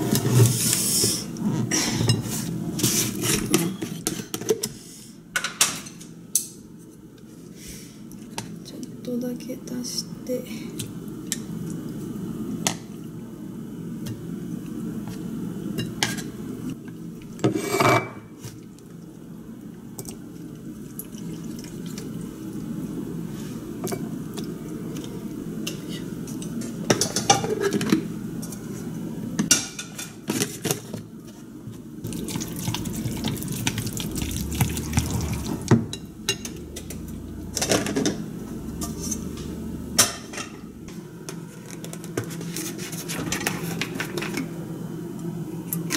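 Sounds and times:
steady low hum: 31.1 - 45.9.

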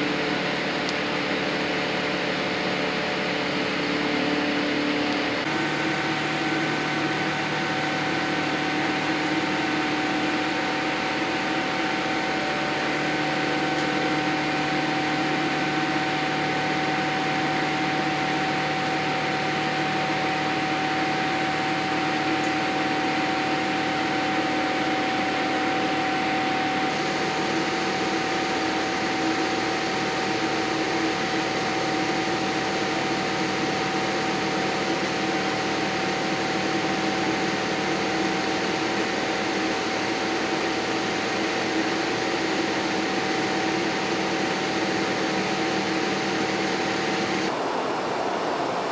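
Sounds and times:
jet engine hum: 0.0 - 48.9
steady humming tones: 0.0 - 48.9
airplane cabin air rush: 43.8 - 48.9.

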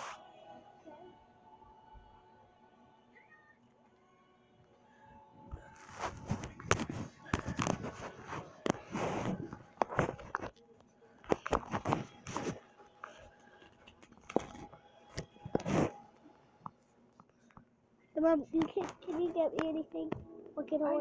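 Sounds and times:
clothing rubbing on phone: 0.0 - 0.3, 5.5 - 10.6, 11.2 - 16.3.

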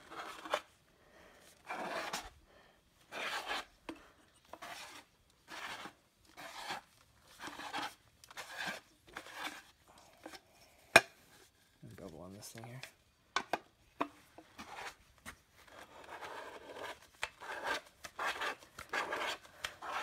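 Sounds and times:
beveling tool rasping on pipe: 15.7 - 20.0.

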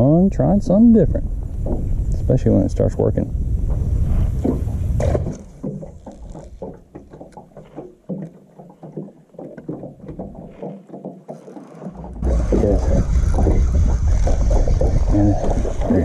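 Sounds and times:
wind rumble on microphone: 0.0 - 6.7, 12.1 - 16.0
waves lapping against boat hull: 3.6 - 16.0.

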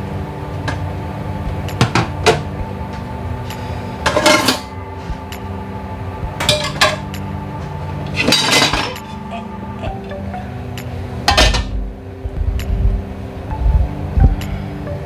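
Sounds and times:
steady hum: 0.0 - 15.0
utensils and dishes clattering: 4.0 - 4.7, 6.4 - 7.1, 8.1 - 9.4, 11.3 - 11.8.

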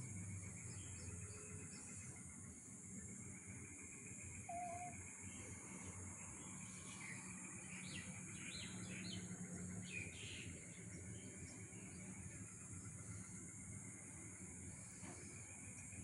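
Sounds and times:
faint pulsing insect trill: 0.0 - 16.0
high insect drone: 0.0 - 16.0
bird chirps: 4.0 - 12.1.

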